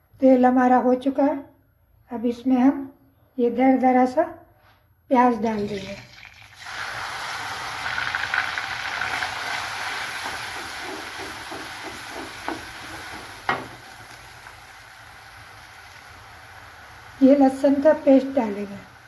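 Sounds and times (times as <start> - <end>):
onion sizzling in hot oil: 5.6 - 19.0
wooden spatula stirring in pan: 9.0 - 14.6
sharp knock: 10.5 - 13.8.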